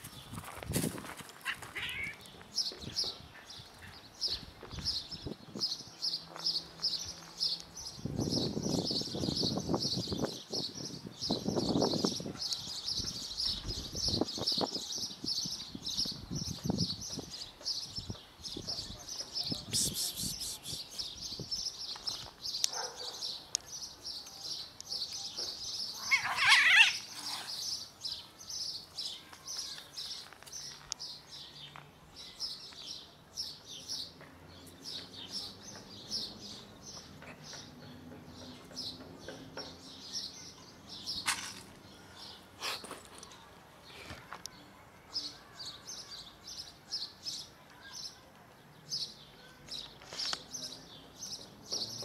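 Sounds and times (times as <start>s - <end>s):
small birds chirping: 1.3s - 52.0s
cat screech: 1.4s - 2.2s, 26.1s - 27.0s.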